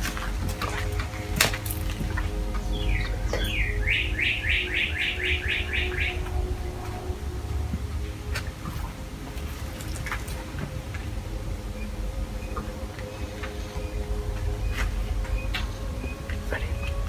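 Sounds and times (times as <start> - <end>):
low rumble on microphone: 0.0 - 17.0.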